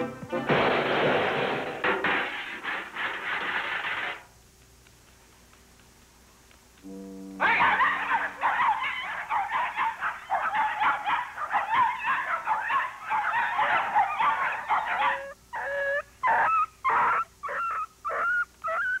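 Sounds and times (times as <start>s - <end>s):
dogs yapping and whining: 7.4s - 19.0s.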